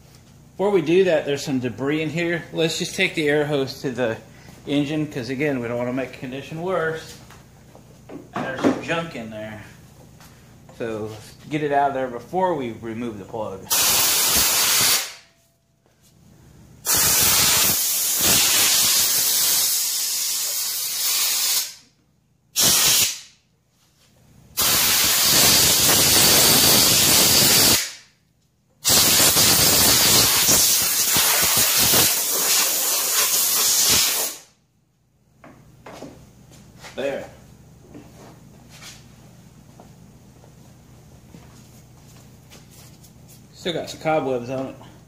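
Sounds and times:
compressed air blow gun hissing: 0:28.9 - 0:34.4.

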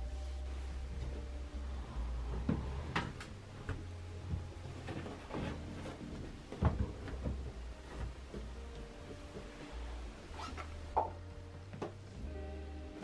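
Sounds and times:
shelf unit knocking and bumping: 0:02.4 - 0:08.6.

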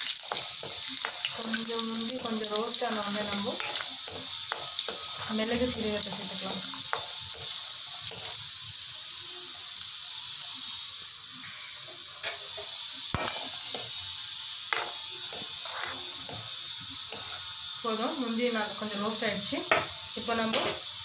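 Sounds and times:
metal spoon striking pan: 0:00.0 - 0:08.4, 0:13.1 - 0:13.9, 0:14.7 - 0:16.5, 0:19.7 - 0:19.9, 0:20.5 - 0:20.8
cashews sizzling in hot fat: 0:00.0 - 0:21.0.

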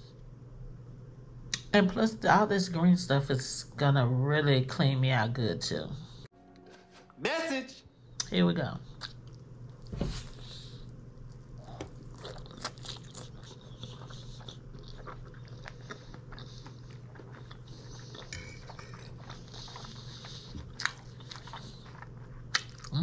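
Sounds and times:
steady low hum: 0:00.0 - 0:23.0
close chewing and crunching: 0:10.4 - 0:23.0.

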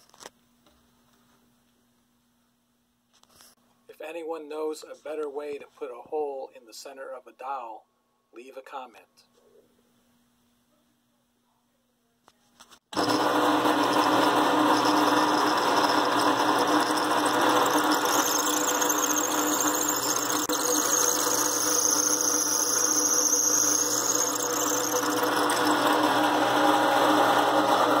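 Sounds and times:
drill bit boring into wood: 0:13.0 - 0:28.0
drill press motor running: 0:13.0 - 0:28.0.

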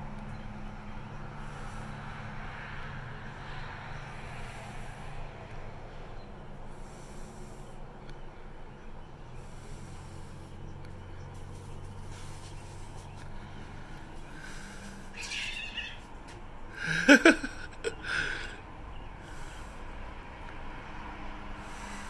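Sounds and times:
cat screeching: 0:15.1 - 0:16.0
cats growling and yowling: 0:15.1 - 0:16.0.

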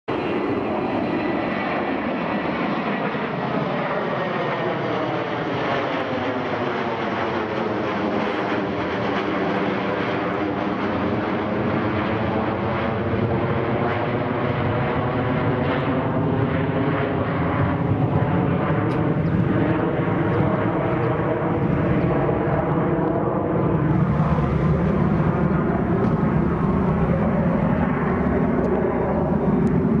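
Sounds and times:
jet engines roaring: 0:00.1 - 0:30.0
humming engine tones: 0:15.9 - 0:30.0.

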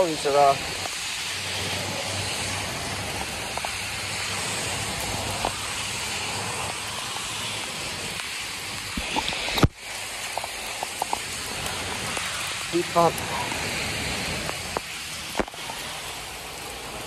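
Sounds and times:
heavy rain: 0:00.0 - 0:17.0.

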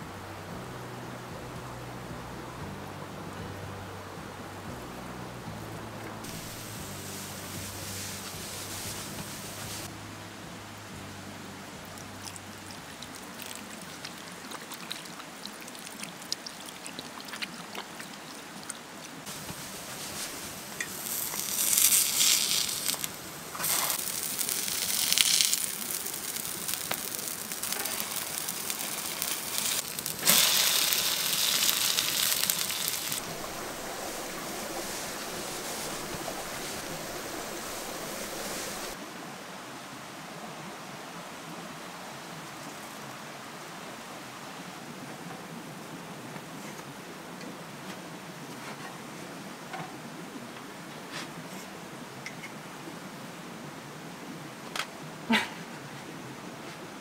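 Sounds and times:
pancakes sizzling in oil: 0:06.3 - 0:09.9, 0:19.3 - 0:39.0
water trickling onto hands: 0:11.9 - 0:39.0.

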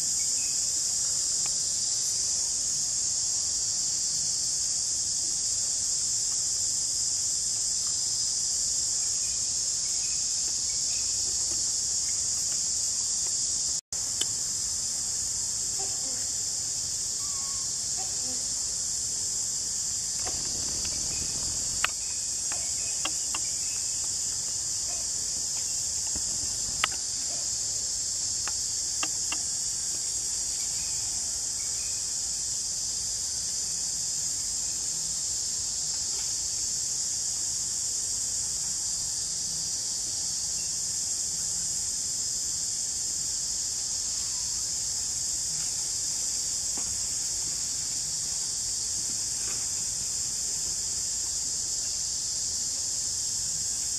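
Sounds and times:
insect chorus drone: 0:00.0 - 0:53.9.

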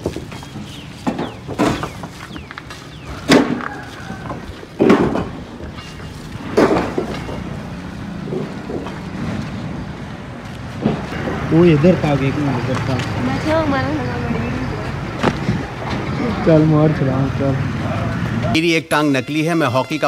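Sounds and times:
loud knocks and thumps: 0:00.0 - 0:02.1, 0:03.1 - 0:09.7, 0:10.8 - 0:11.5.

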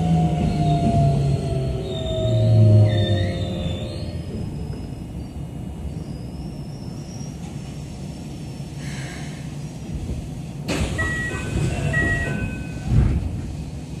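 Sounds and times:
train wheels rumbling on track: 0:00.0 - 0:14.0
hiss: 0:07.3 - 0:10.8.

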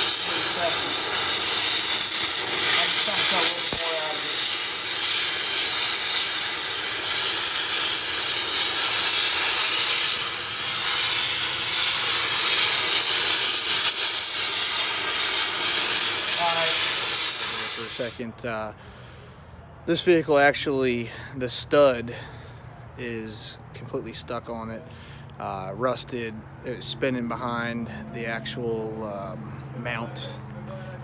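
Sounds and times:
cutting torch hissing: 0:00.0 - 0:18.3.

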